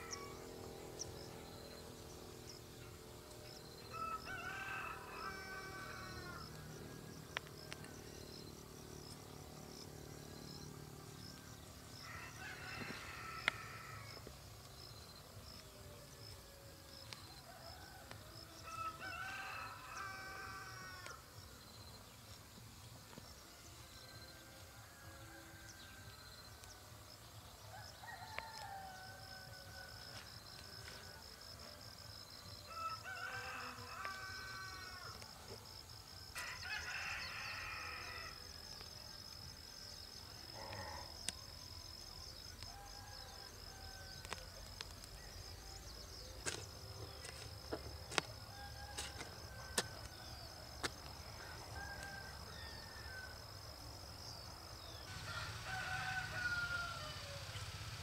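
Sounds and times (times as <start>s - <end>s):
rooster crowing: 3.9s - 6.6s, 12.0s - 14.2s, 17.4s - 21.2s, 27.7s - 30.2s, 32.7s - 35.2s, 36.4s - 38.5s, 51.4s - 53.5s, 55.1s - 58.0s.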